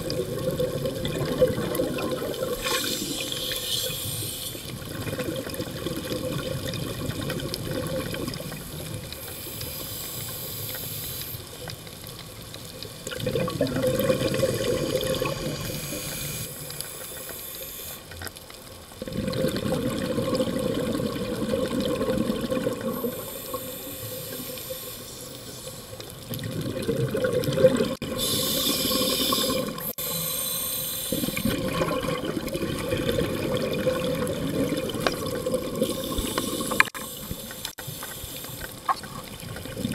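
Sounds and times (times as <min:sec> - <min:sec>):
exhale bubbling underwater: 0:00.0 - 0:08.6, 0:13.1 - 0:16.3, 0:19.0 - 0:24.8, 0:26.3 - 0:30.4, 0:31.1 - 0:37.3, 0:39.0 - 0:39.9
regulator inhale hiss: 0:02.6 - 0:04.8, 0:09.2 - 0:11.6, 0:15.2 - 0:18.1, 0:22.9 - 0:26.0, 0:28.1 - 0:31.5, 0:35.8 - 0:38.8.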